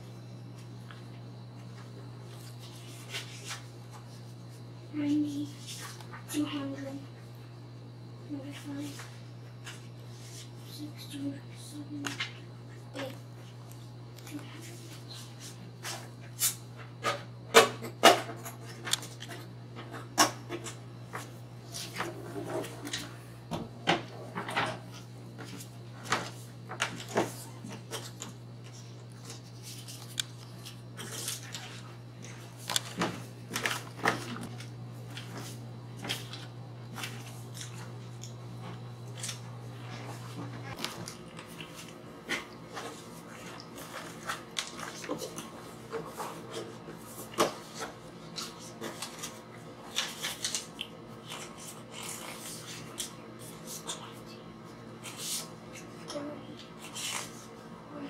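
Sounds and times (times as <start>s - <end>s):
steady low hum: 0.0s - 58.0s
things being handled clicking: 26.1s - 35.3s.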